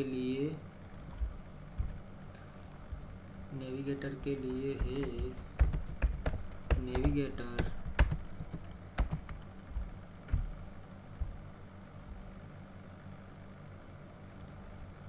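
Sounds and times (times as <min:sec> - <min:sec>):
steady low hum: 0:00.0 - 0:15.0
computer keyboard keystrokes: 0:00.8 - 0:01.9, 0:02.6 - 0:02.8, 0:04.0 - 0:09.5, 0:14.4 - 0:14.6.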